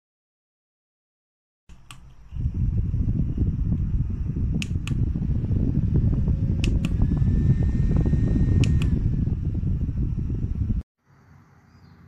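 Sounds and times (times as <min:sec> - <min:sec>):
sharp clicks: 0:01.7 - 0:02.2, 0:04.5 - 0:05.1, 0:06.6 - 0:07.4, 0:08.5 - 0:09.1
desk fan airflow rushing: 0:01.7 - 0:10.8.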